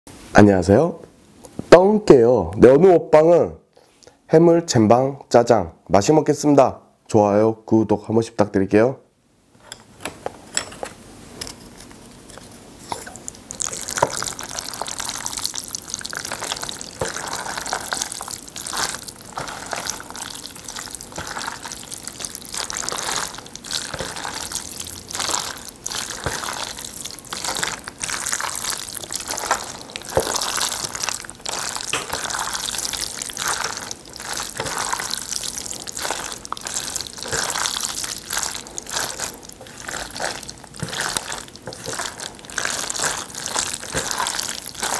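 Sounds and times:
chopsticks mixing sticky noodles: 12.9 - 44.9.

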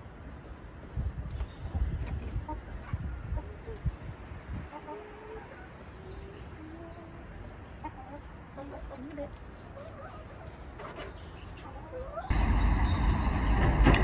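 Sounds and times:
hens clucking: 4.7 - 5.5, 6.1 - 13.2.

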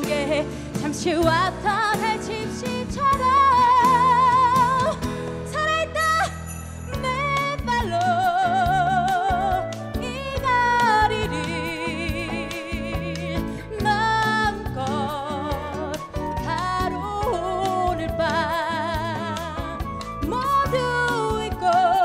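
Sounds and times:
instrumental accompaniment: 0.0 - 22.0
woman singing into microphone: 0.0 - 22.0.

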